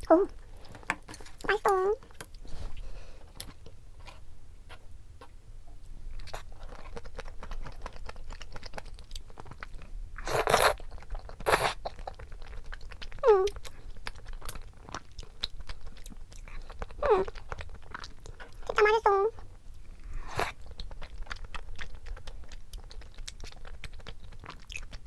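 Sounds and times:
wet chewing and mouth clicks: 6.2s - 25.0s.

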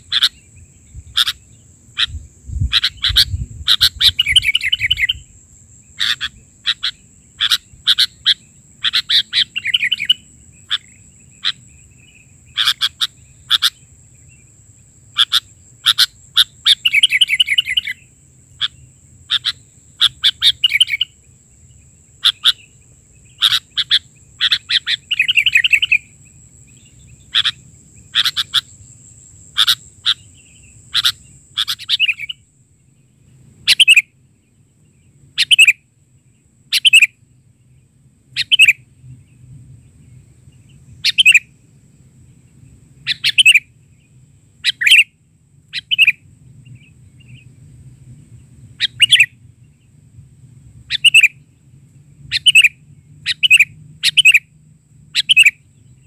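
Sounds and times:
bird chirping and warbling: 0.0s - 14.4s, 15.1s - 21.2s, 22.2s - 26.1s, 26.7s - 28.9s, 29.5s - 32.4s, 33.7s - 34.1s, 35.4s - 35.8s, 36.7s - 37.2s, 38.4s - 38.8s, 40.1s - 41.5s, 43.0s - 43.7s, 44.6s - 45.1s, 45.7s - 47.5s, 48.8s - 49.4s, 50.9s - 51.4s, 52.3s - 54.4s, 55.2s - 55.6s.

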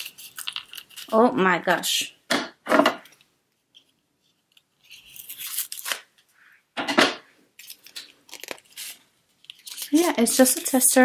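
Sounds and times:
paper and card rustling and tearing: 0.0s - 1.3s, 3.8s - 6.1s, 7.6s - 11.0s.

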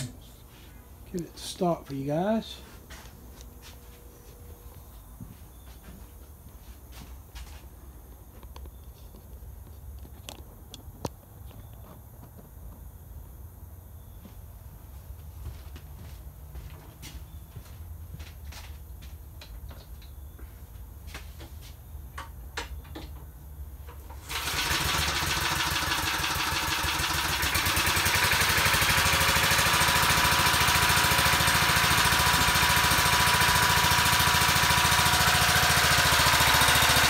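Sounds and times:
small lawn mower engine running: 24.0s - 37.0s.

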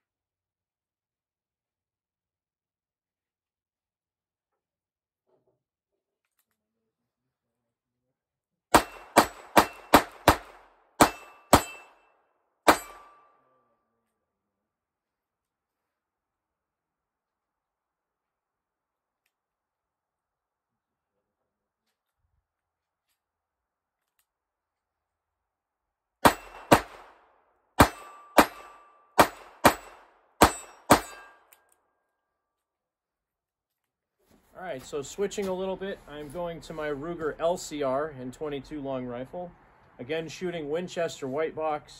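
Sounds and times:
revolver gunshots: 8.7s - 12.0s, 26.2s - 31.4s.

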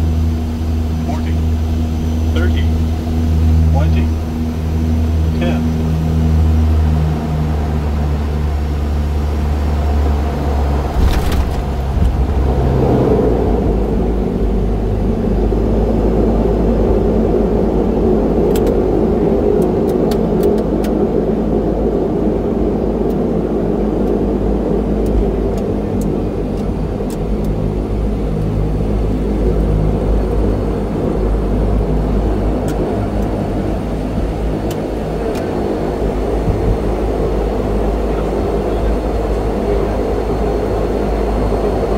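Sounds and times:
turboprop engines roaring: 0.0s - 41.9s
landing thump: 10.9s - 12.2s.

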